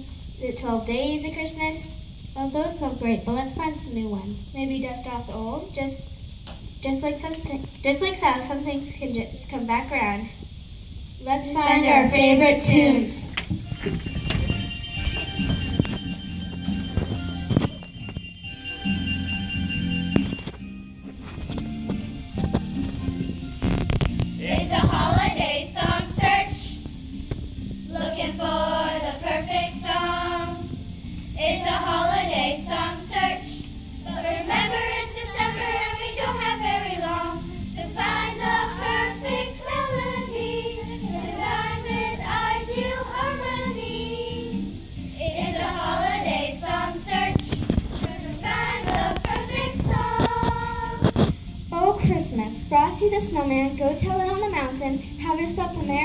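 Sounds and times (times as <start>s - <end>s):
children's choir singing: 11.4s - 17.7s, 24.4s - 26.9s, 27.9s - 30.8s, 31.4s - 51.2s.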